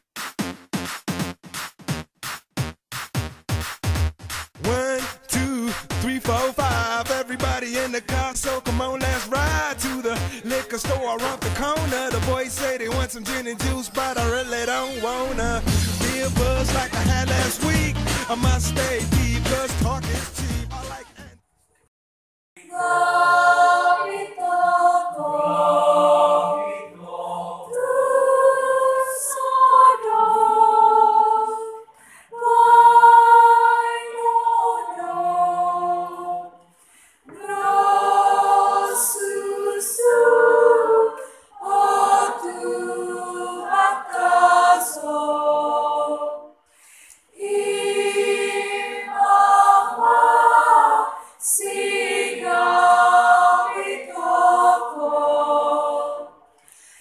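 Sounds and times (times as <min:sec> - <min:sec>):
choir singing unaccompanied: 0:09.1 - 0:19.6, 0:22.6 - 0:46.6, 0:47.3 - 0:56.5.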